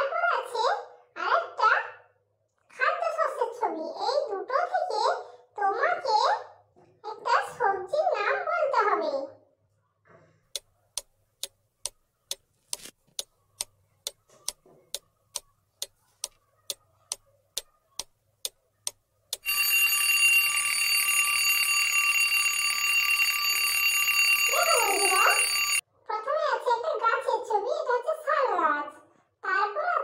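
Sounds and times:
alarm clock bell ringing: 19.4s - 25.8s.

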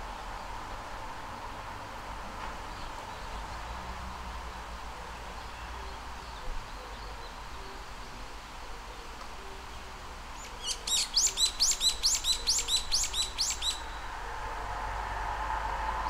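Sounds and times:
bird chirping: 10.4s - 14.1s.

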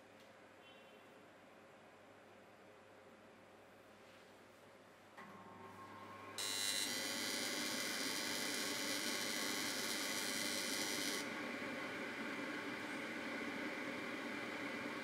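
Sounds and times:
fan motor hum: 5.6s - 15.0s.

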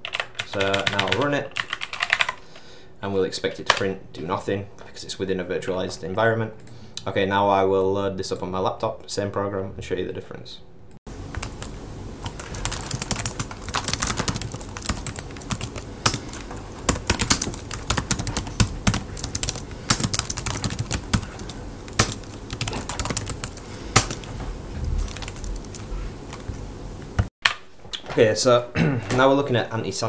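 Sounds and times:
typing on a computer keyboard: 0.0s - 2.4s, 11.3s - 24.3s, 25.0s - 26.5s.

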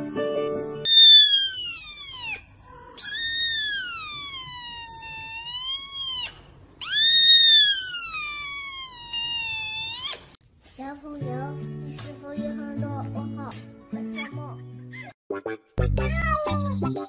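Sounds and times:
kitten meowing: 0.9s - 10.4s.

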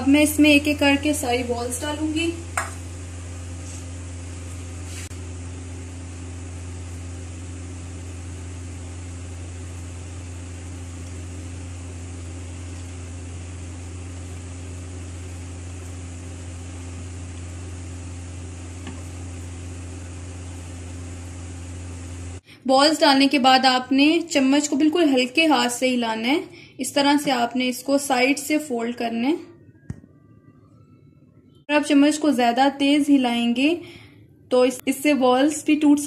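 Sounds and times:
low machine hum: 0.0s - 23.2s.

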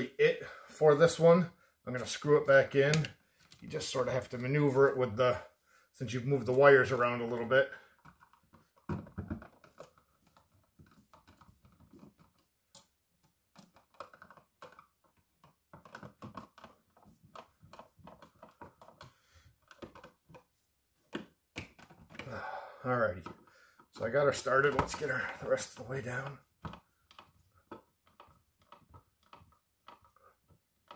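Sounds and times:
small clicks taps and scrapes: 2.4s - 4.7s, 6.4s - 22.4s, 23.2s - 30.9s.

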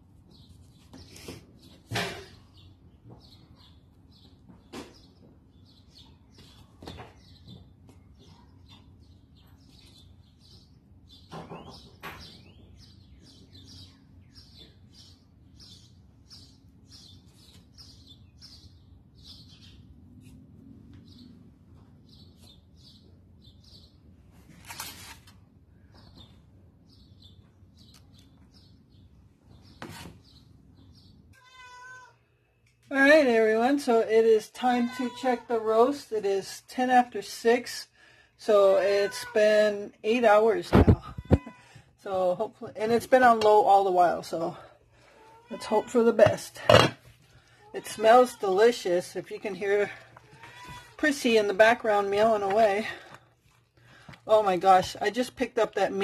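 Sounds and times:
small birds chirping: 0.2s - 24.2s, 25.8s - 36.6s.

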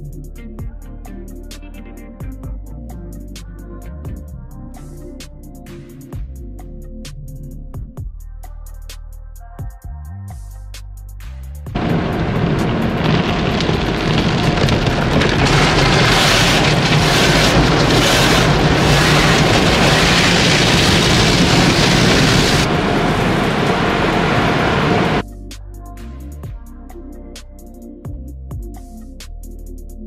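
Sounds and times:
car wash water jets and brushes: 11.8s - 25.2s.

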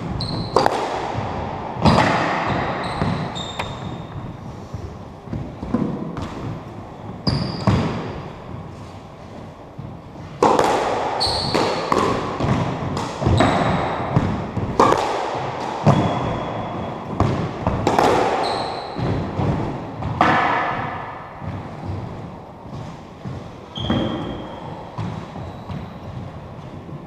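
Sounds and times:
sneakers squeaking on wooden floor: 0.0s - 0.8s, 1.8s - 8.6s, 11.2s - 12.6s, 13.2s - 14.6s, 15.8s - 17.5s, 18.3s - 20.2s, 21.4s - 26.8s
squash ball hitting rackets and walls: 0.0s - 27.0s.

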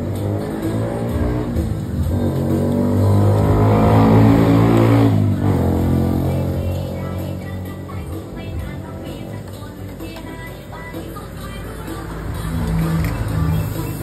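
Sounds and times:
vehicle engine passing by: 0.0s - 9.0s, 12.0s - 14.0s.

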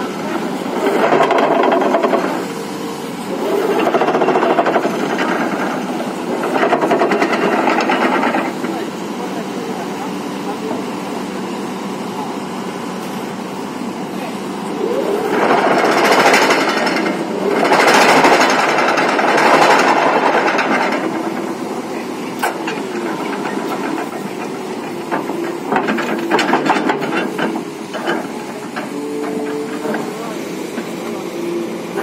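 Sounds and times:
excavator engine running: 0.0s - 32.0s
vibratory pile hammer rattling: 15.3s - 30.0s.

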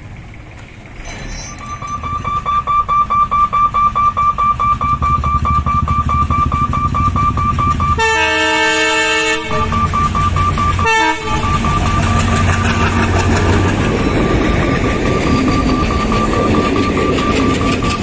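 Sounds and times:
locomotive engine rumble: 0.0s - 18.0s
high-pitched pulsing ring: 1.0s - 8.0s, 9.5s - 18.0s
train horn blast: 8.0s - 10.0s, 10.8s - 11.8s.

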